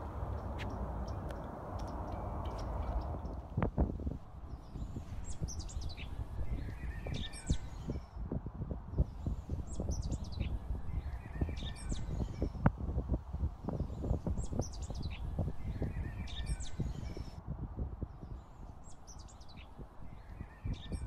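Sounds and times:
songbird singing: 0:00.0 - 0:08.2, 0:08.9 - 0:12.7, 0:13.4 - 0:17.4, 0:18.0 - 0:21.0.

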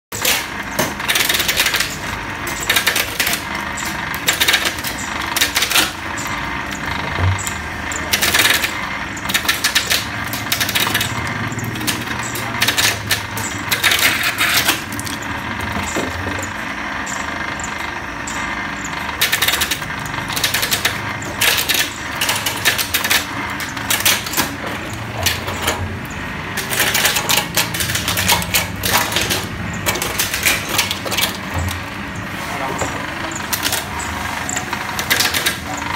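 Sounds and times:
coconut shell clattering and rattling: 0:00.2 - 0:16.8.

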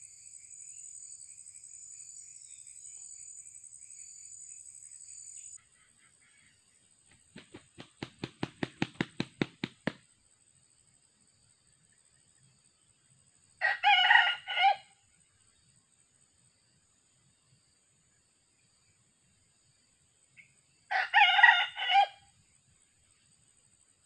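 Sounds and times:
high insect chorus: 0:00.0 - 0:24.0
rooster flapping its wings: 0:07.1 - 0:10.1.

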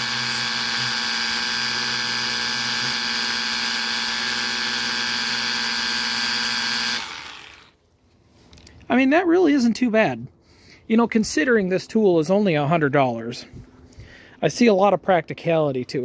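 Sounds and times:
electric pump hum: 0:00.0 - 0:07.8.

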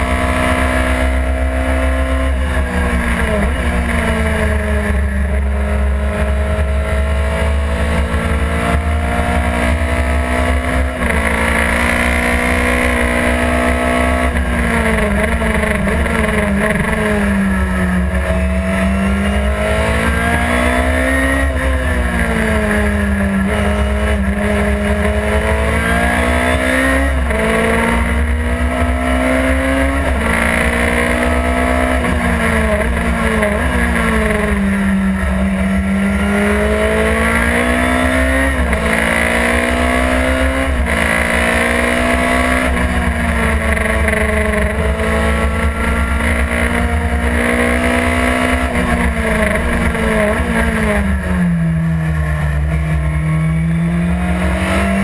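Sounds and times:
race car engine revving: 0:00.0 - 0:55.0.

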